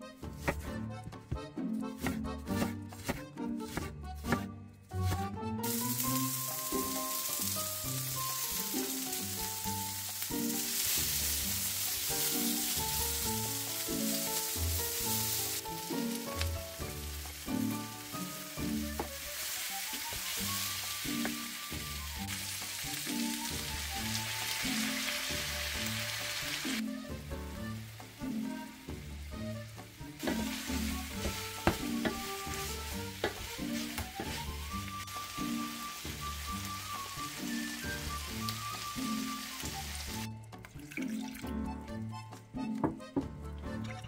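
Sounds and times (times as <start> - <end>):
background music: 0.0 - 44.0
knife chopping on wooden board: 0.3 - 5.4, 30.2 - 34.5
vegetables sizzling in a pan: 5.6 - 27.1, 27.7 - 40.3.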